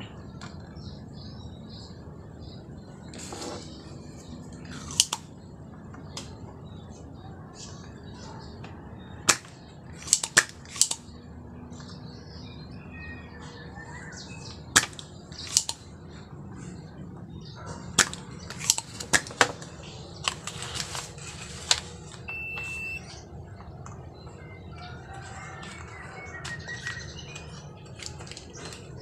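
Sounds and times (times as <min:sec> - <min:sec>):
desoldering pump snapping: 0:04.6 - 0:05.2, 0:09.3 - 0:11.0, 0:14.8 - 0:15.8.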